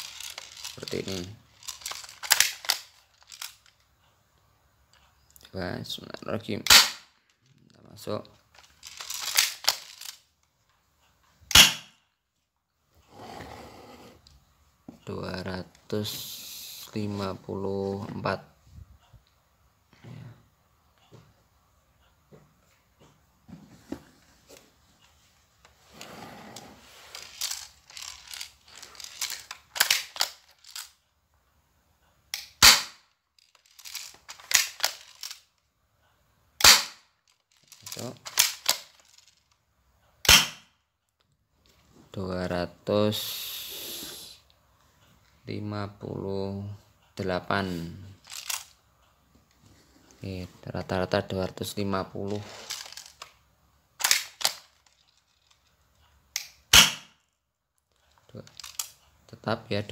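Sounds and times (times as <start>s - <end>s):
plastic clicks and rattles: 0.0s - 3.8s, 8.4s - 10.3s, 27.1s - 31.0s, 33.4s - 35.6s, 37.3s - 39.6s, 48.2s - 48.8s, 52.4s - 53.4s, 54.0s - 56.7s, 57.8s - 59.0s
airsoft pistol shot: 6.7s - 7.0s, 11.5s - 11.9s, 32.6s - 33.0s, 36.6s - 37.0s, 40.3s - 40.6s, 56.7s - 57.1s
pistol slide clicks: 40.3s - 40.6s.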